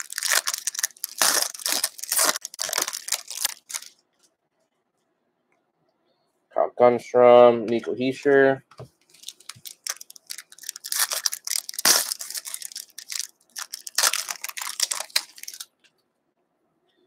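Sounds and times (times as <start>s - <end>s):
card wrapper crinkling: 0.0s - 4.0s, 9.0s - 15.7s.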